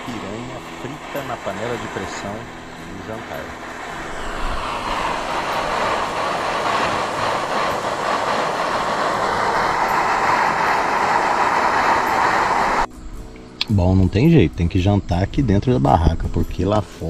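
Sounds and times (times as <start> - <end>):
pressure cooker steam hissing: 0.0 - 12.9.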